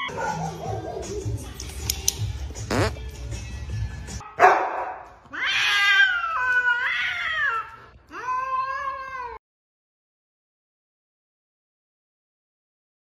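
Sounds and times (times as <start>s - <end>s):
cat yowling: 5.3s - 9.4s.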